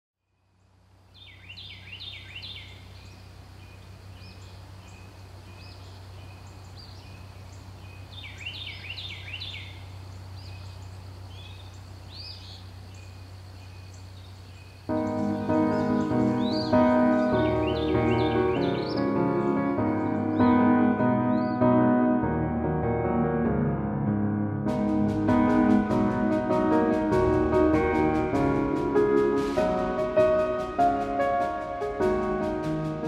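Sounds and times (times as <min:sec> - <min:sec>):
bird calls with whistled notes: 0:01.2 - 0:20.5.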